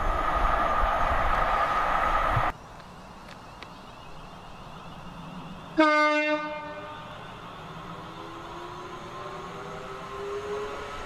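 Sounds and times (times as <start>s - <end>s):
train rising whine: 0.0s - 11.0s
train horn blast: 5.8s - 7.0s.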